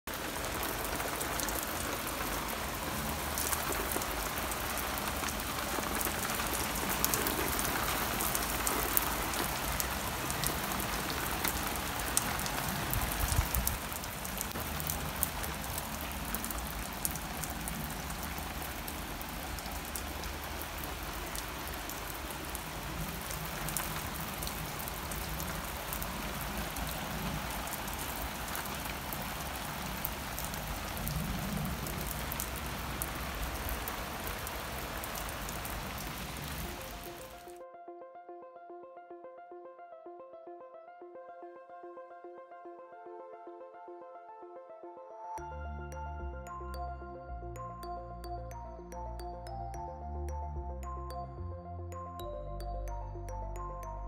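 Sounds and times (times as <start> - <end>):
heavy rain on paving and lawn: 0.0 - 37.5.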